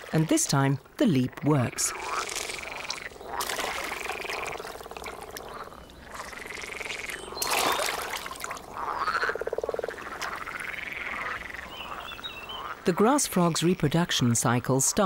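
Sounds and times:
frogs croaking in chorus: 0:00.3 - 0:15.0
frog splashing into water: 0:01.9 - 0:10.9.

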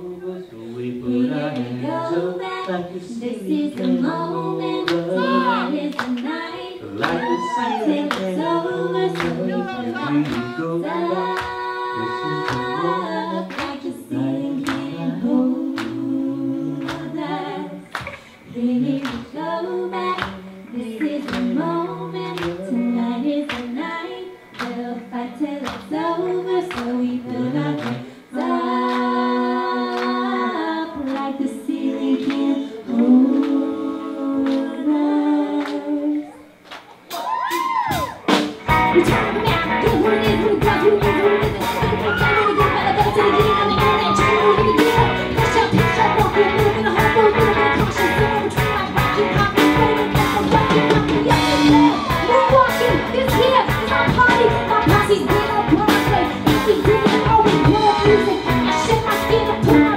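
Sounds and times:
person singing: 0:00.0 - 0:36.6, 0:38.7 - 0:59.9
live band playing: 0:37.0 - 0:59.9
steady drum beat: 0:37.6 - 0:59.9.

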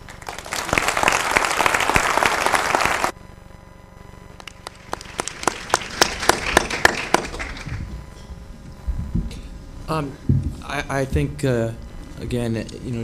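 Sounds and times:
audience applauding: 0:00.0 - 0:03.1, 0:04.5 - 0:07.9.

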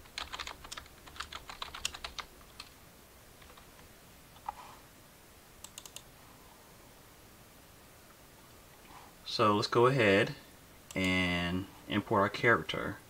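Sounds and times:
typing on computer keyboard: 0:00.0 - 0:02.7, 0:05.6 - 0:06.1.

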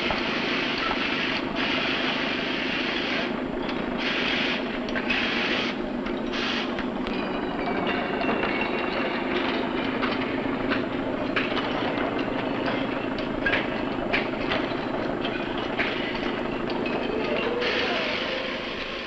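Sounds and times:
freight wagons rumbling: 0:00.0 - 0:19.0
metal wheels squealing on rails: 0:00.1 - 0:19.0
metallic clanks: 0:07.0 - 0:19.0.

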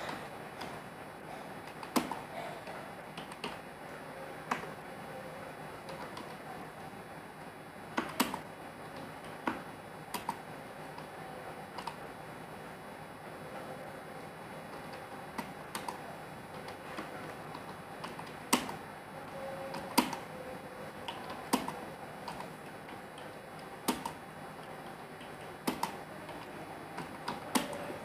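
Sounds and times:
computer keyboard clicks: 0:01.7 - 0:02.2, 0:03.2 - 0:03.6, 0:09.2 - 0:10.4, 0:11.8 - 0:12.0, 0:14.7 - 0:16.0, 0:16.6 - 0:18.8, 0:19.7 - 0:20.2, 0:21.0 - 0:23.3, 0:23.9 - 0:24.2, 0:25.2 - 0:27.8.

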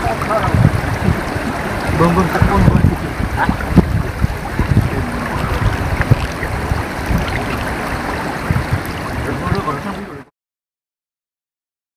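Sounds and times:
wind buffeting microphone: 0:00.0 - 0:10.2.

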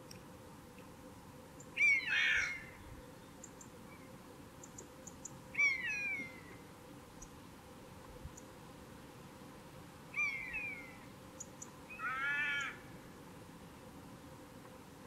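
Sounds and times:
buzzard mewing calls: 0:01.8 - 0:02.8, 0:11.9 - 0:12.9.

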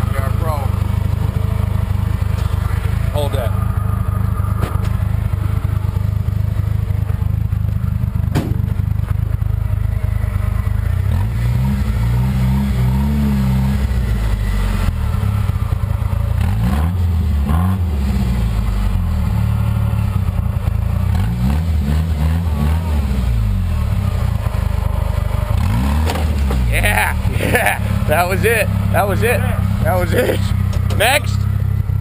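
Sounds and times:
engine revving: 0:00.0 - 0:32.0
sharp knock: 0:08.3 - 0:08.9.

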